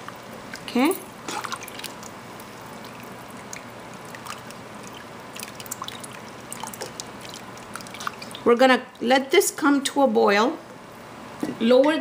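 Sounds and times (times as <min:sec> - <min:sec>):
liquid sloshing in pot: 0:00.0 - 0:09.2.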